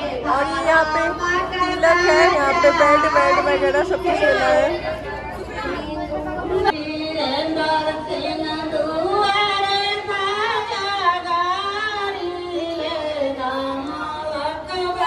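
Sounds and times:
women singing together: 0.0 - 15.0.

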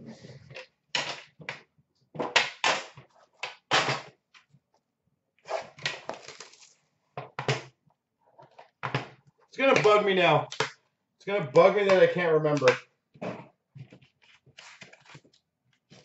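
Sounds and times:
cards rustling and scraping: 5.5 - 6.8, 13.8 - 16.0.

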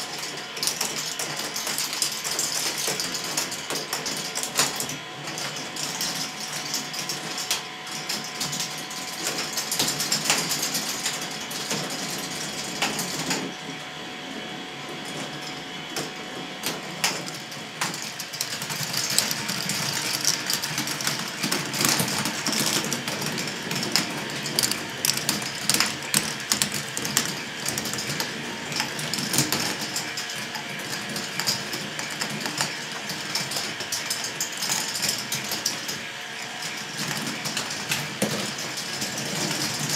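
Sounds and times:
plastic balls clattering on tracks: 16.6 - 39.9.

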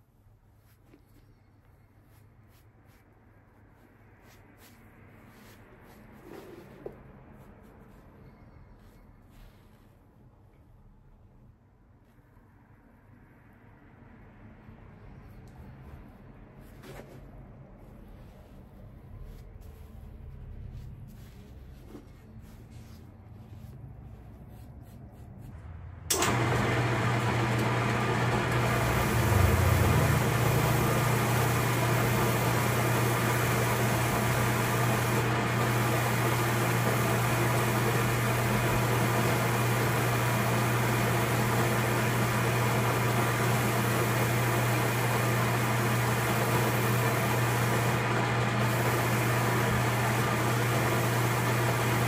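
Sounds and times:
machine humming: 25.6 - 52.0
rush of air from dust extraction: 26.0 - 52.0.

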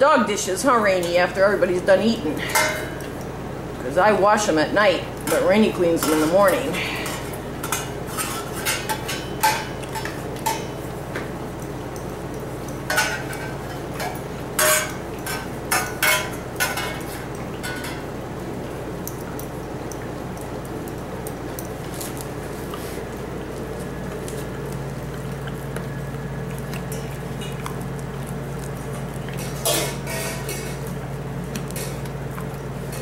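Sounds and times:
dog licking: 19.0 - 30.1.

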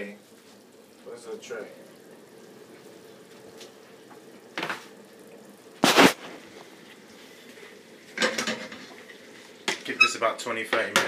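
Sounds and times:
faint steady hiss: 0.0 - 11.0
short scrape: 5.8 - 6.4.

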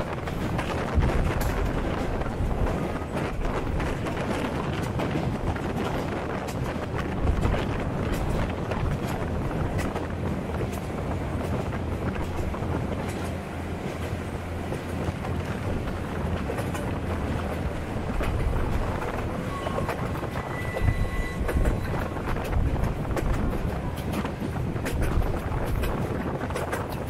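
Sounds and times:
train rumbling on track: 0.0 - 27.0
wheels clacking over rail joints: 0.0 - 27.0.

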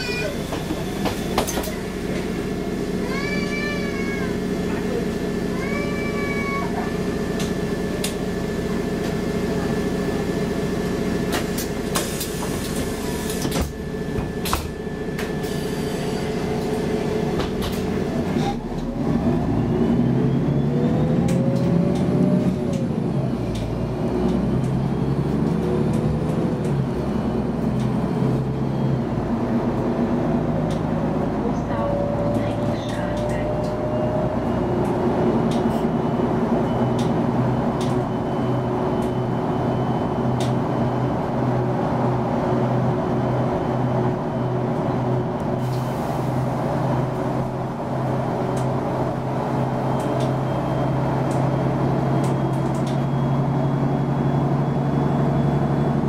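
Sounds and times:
bus diesel engine: 0.0 - 56.0
gearbox whine rising: 48.4 - 56.0.

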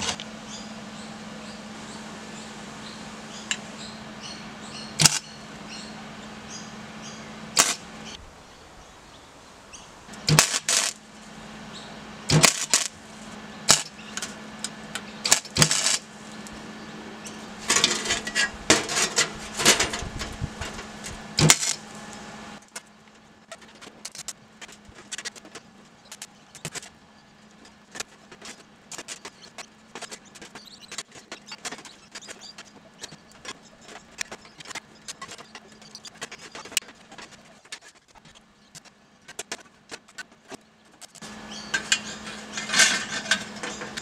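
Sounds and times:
low welder hum: 0.0 - 8.8, 9.6 - 44.0
welding arc bursts: 5.0 - 5.2, 7.5 - 7.9, 10.2 - 11.1, 12.3 - 13.0, 13.6 - 14.0, 15.2 - 16.2, 20.4 - 21.9.

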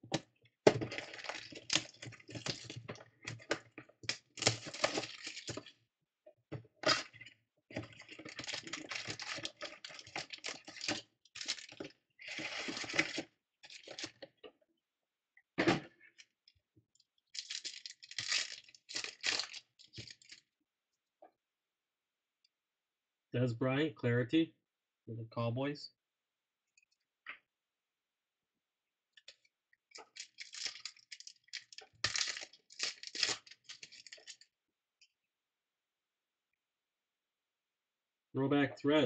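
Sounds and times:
crinkling and tearing wrappers: 0.7 - 5.7, 7.8 - 14.2, 17.3 - 20.4, 29.9 - 34.5.

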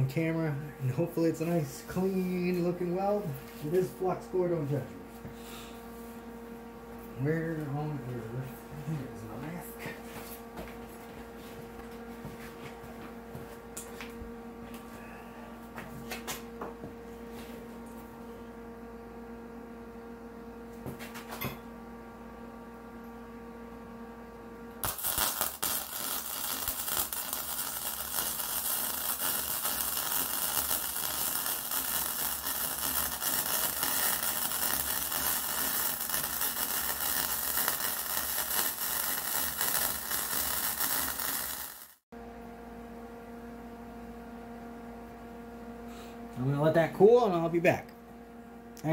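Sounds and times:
electrical hum: 0.0 - 48.9
welding arc crackling: 24.8 - 42.0.

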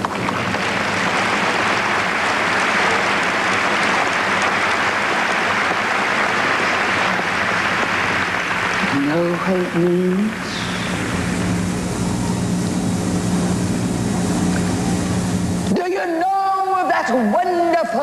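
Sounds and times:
large crowd applauding: 0.0 - 11.5.

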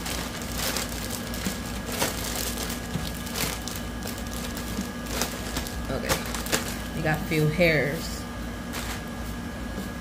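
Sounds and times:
plastic bag crinkling: 0.0 - 7.3, 8.6 - 9.2.

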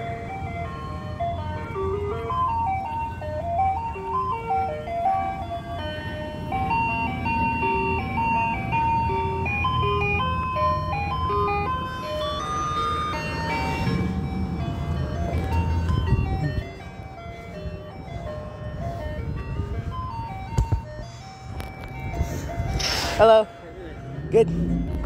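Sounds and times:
ice cream van chiming jingle: 0.0 - 25.0
van engine running: 0.0 - 25.0.

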